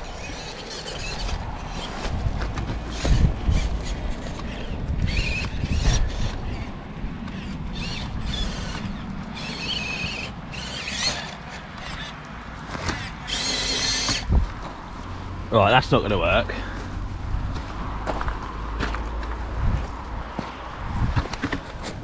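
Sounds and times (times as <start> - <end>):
wind rumble on microphone: 0.0 - 9.4, 14.1 - 14.8, 16.9 - 22.0
toy car motor whining: 0.0 - 14.4.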